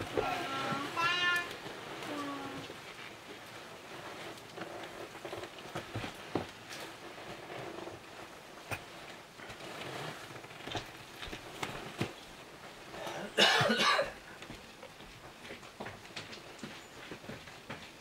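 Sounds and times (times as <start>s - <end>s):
person coughing: 13.0s - 14.2s.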